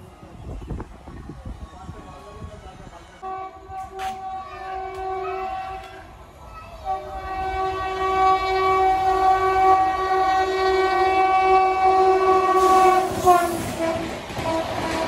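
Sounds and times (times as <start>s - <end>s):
train rushing and rumbling: 0.0s - 15.0s
locomotive horn blast: 3.2s - 6.0s, 6.9s - 15.0s.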